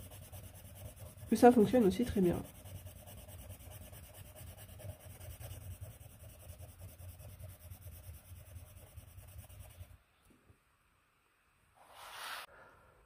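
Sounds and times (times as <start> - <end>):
pencil scratching on paper: 0.0 - 10.0.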